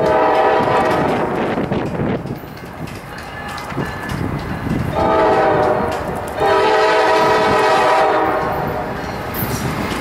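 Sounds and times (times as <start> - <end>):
locomotive air horn blasts: 0.0 - 1.4, 5.0 - 8.8
rumble of approaching train: 0.0 - 10.0.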